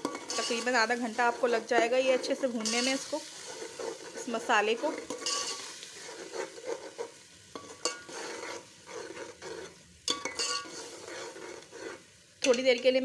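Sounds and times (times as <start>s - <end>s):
spoon clinking against pot: 0.0s - 0.7s, 5.0s - 5.7s, 7.5s - 8.1s, 10.1s - 10.8s
spoon stirring thick sauce: 0.0s - 12.5s
sauce frying: 0.0s - 13.0s.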